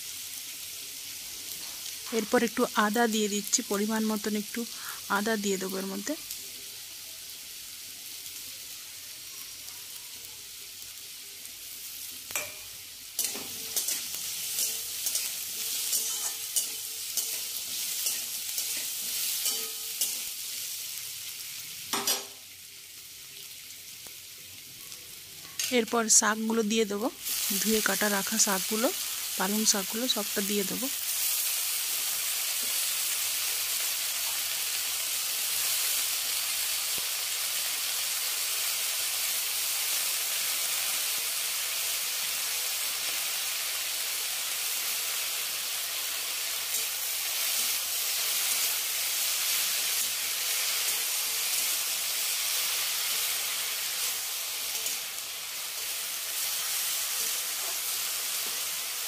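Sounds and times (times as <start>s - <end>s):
spinach sizzling in hot oil: 0.0s - 59.0s.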